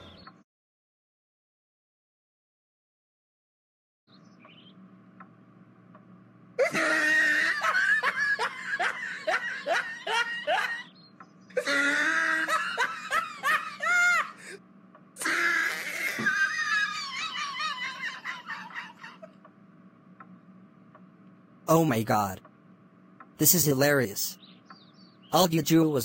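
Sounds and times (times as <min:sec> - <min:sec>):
man laughing hard: 0:06.6 - 0:10.9, 0:11.6 - 0:14.6, 0:15.2 - 0:19.4.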